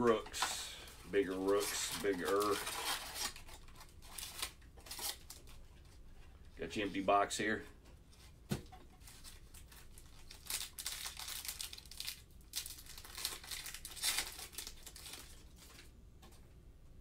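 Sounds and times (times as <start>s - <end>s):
foil wrapper tearing and crinkling: 1.1s - 5.5s, 9.1s - 15.8s.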